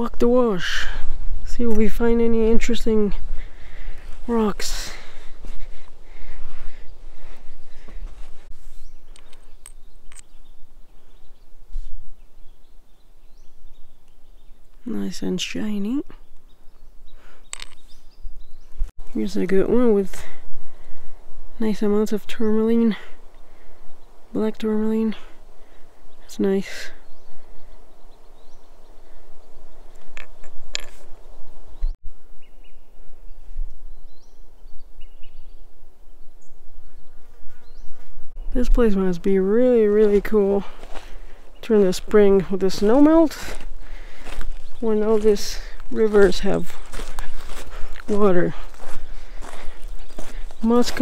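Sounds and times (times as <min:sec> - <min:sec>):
wind rumbling on microphone: 0:00.0 - 0:14.8, 0:16.1 - 0:26.3, 0:27.0 - 0:51.0
stones knocking together: 0:17.5 - 0:17.8, 0:30.0 - 0:31.1
faint bird chirps: 0:31.2 - 0:39.0.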